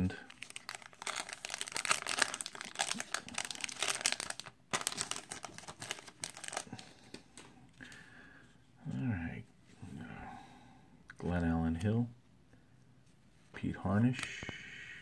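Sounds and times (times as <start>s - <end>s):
wrapper tearing and crinkling: 0.0s - 6.8s.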